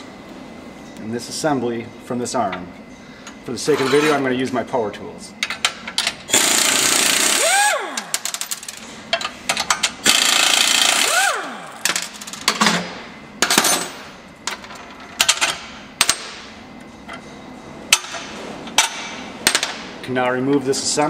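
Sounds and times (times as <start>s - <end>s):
air impact wrench whining: 6.3s - 8.8s, 10.0s - 12.4s.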